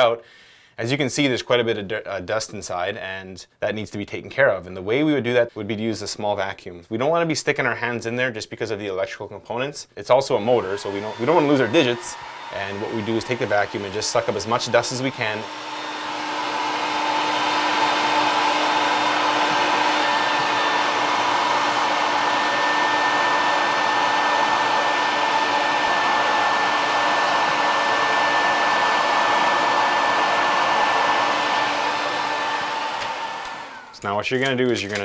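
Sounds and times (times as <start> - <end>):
vacuum cleaner whining: 10.3 - 34.1.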